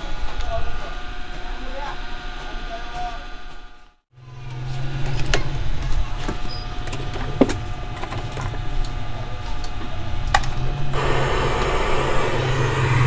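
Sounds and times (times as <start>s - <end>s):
steady hiss: 11.0s - 13.0s.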